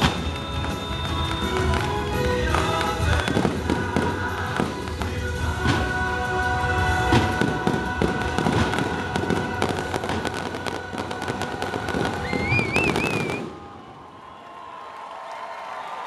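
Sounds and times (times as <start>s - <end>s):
fireworks crackling and popping: 0.0s - 14.0s
high wavering whistle: 12.1s - 13.6s.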